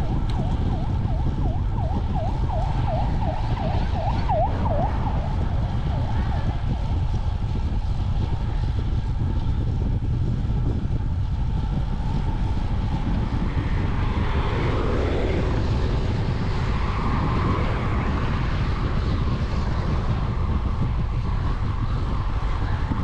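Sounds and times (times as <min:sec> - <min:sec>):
traffic passing: 0:00.0 - 0:07.4
wind rumble on microphone: 0:00.0 - 0:23.0.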